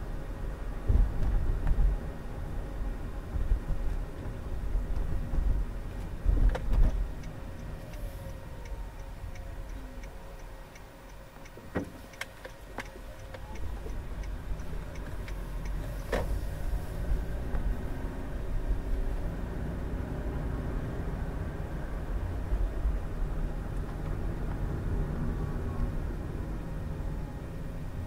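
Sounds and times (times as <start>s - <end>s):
car cabin rumble: 3.1s - 19.1s
turn signal ticking: 3.6s - 19.3s.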